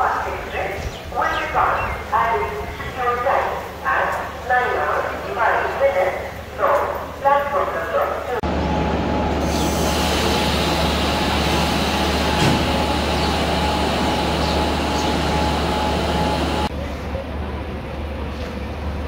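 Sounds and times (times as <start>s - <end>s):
train rumble: 0.0s - 19.0s
locomotive high whine: 8.2s - 19.0s
locomotive low hum: 8.2s - 19.0s.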